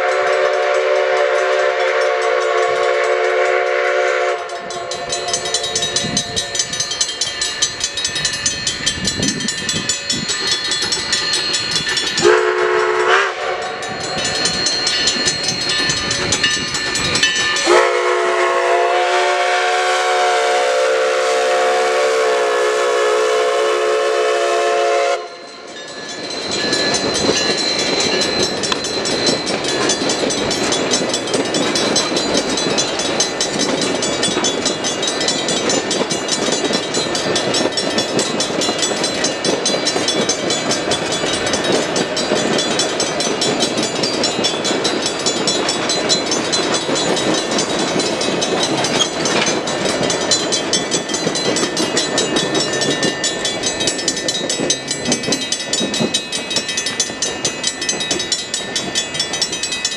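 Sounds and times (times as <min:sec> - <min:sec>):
steam locomotive whistle: 0:00.0 - 0:06.7, 0:12.2 - 0:13.9, 0:17.6 - 0:25.5
crossing bells ringing: 0:00.0 - 0:59.9
train rolling through crossing: 0:00.0 - 0:59.9.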